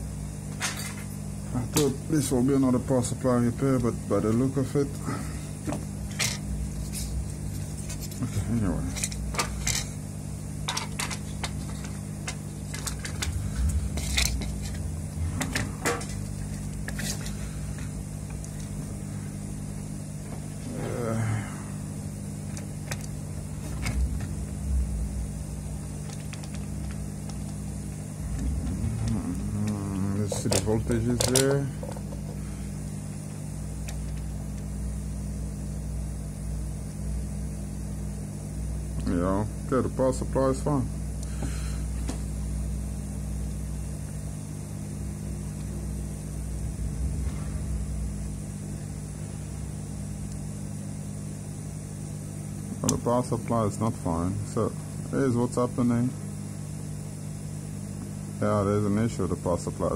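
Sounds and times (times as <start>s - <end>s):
steady low hum: 0.0s - 59.9s
low rumble: 12.8s - 18.9s, 28.2s - 30.2s, 45.7s - 50.1s.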